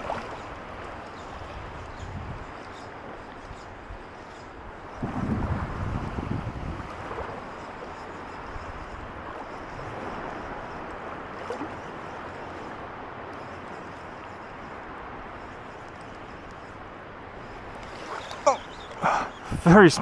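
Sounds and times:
small waves rippling: 0.0s - 20.0s
wind: 0.0s - 20.0s
wind noise on microphone: 1.4s - 2.6s, 4.6s - 7.5s.

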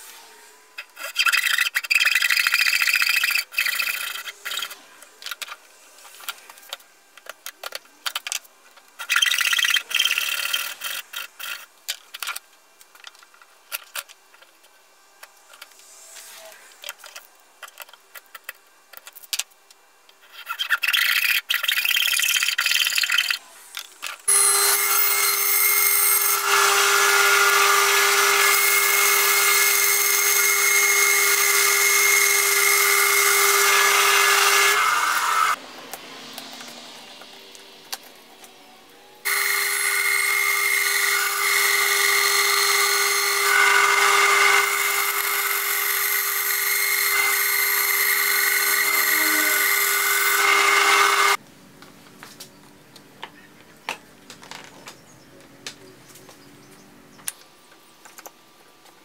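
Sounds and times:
small clicks and handling noise: 3.6s - 9.3s, 10.3s - 20.8s, 57.2s - 59.0s
backsaw cutting wood: 24.3s - 35.6s, 39.2s - 51.4s
bandsaw humming: 24.3s - 37.5s, 39.2s - 51.4s.

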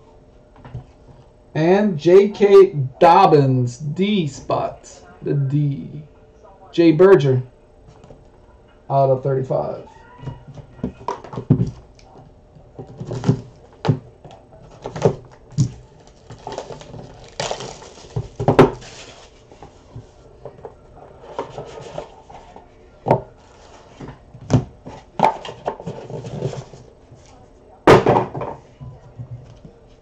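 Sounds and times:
cardboard rustle: 14.7s - 22.7s, 23.4s - 27.4s.

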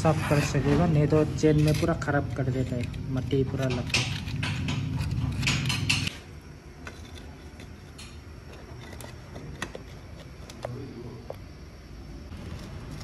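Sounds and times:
steady low hum: 0.0s - 13.0s
metal clinks and scraping: 1.5s - 6.1s.

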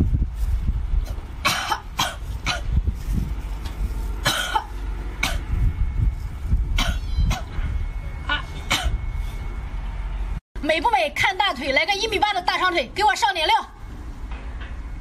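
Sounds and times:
wind rumble on microphone: 0.0s - 10.4s.

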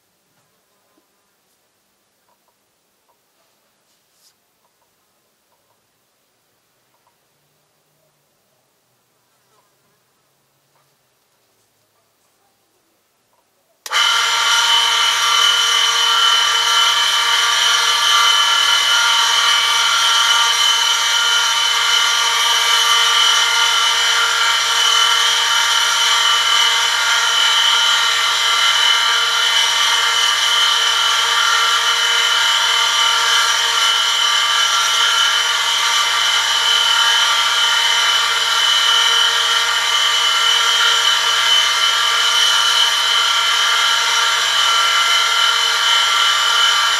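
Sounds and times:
high-pitched whine: 13.9s - 46.9s
low motor hum: 13.9s - 46.9s.

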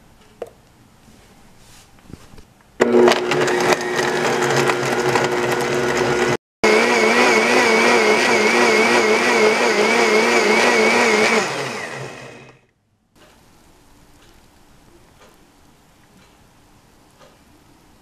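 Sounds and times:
blender motor whining: 2.8s - 12.6s.

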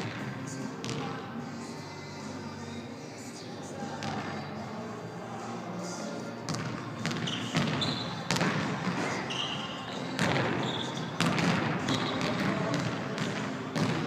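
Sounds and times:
sneakers squeaking on court: 6.5s - 14.0s.

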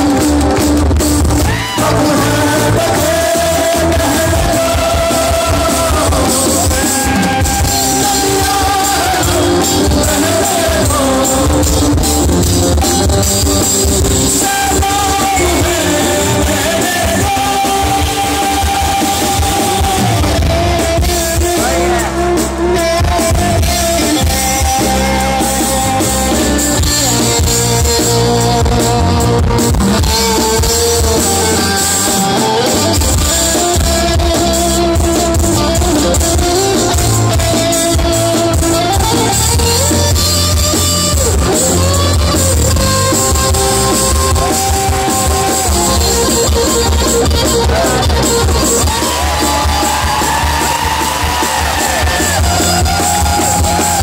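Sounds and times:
live rock band playing: 0.0s - 54.0s
lead melody gliding: 9.1s - 50.2s.

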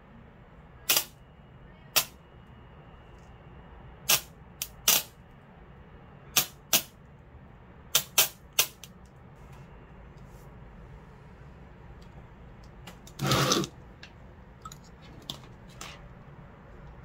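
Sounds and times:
electric arc snaps: 0.9s - 1.2s.

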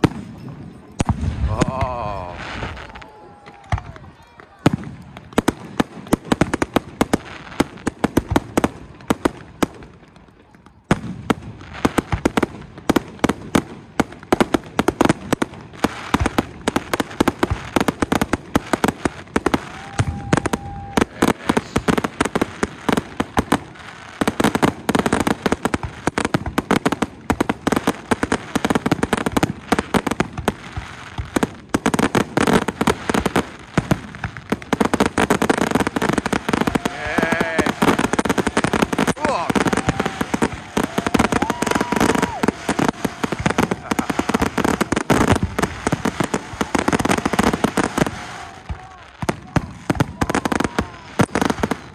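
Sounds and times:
firework crackling: 0.0s - 51.9s
firework shells bursting: 32.9s - 50.2s.

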